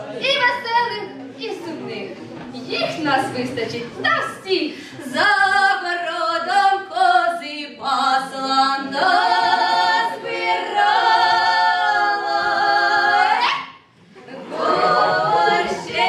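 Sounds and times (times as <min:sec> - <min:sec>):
female vocal trio singing: 0:05.0 - 0:13.8, 0:14.4 - 0:16.0.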